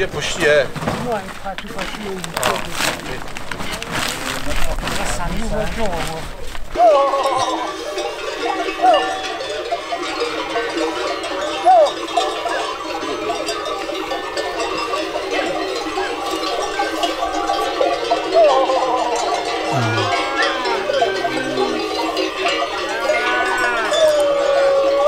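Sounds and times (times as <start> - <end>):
goat bells clanking: 6.7 - 25.0
goats bleating: 19.7 - 21.9, 22.8 - 25.0.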